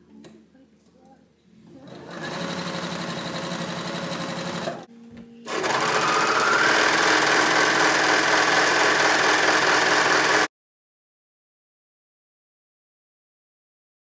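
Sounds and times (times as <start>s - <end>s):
sewing machine stitching: 1.7s - 4.9s, 5.5s - 10.5s.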